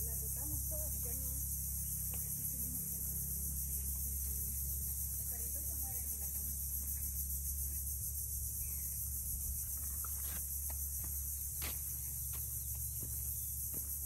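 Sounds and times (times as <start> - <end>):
high-pitched insect chorus: 0.0 - 14.0.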